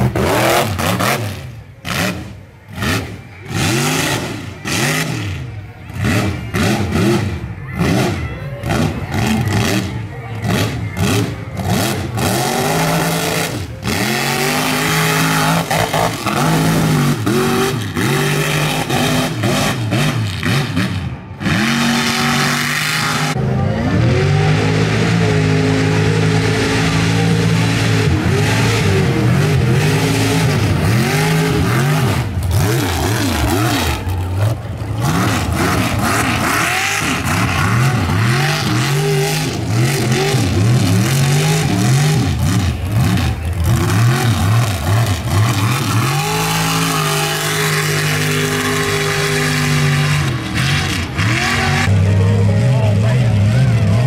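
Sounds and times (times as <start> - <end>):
truck engine revving hard: 0.0 - 54.0.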